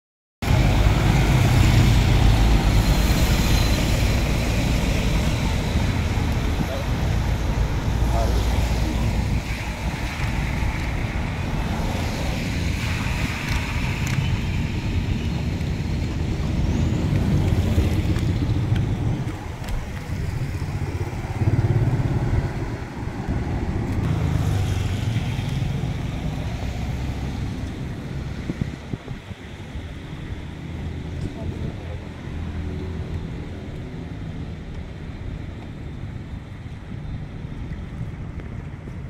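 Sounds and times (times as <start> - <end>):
traffic passing on wet road: 0.4 - 39.0
wind buffeting microphone: 0.4 - 39.0
motorcycle passing: 0.5 - 27.6.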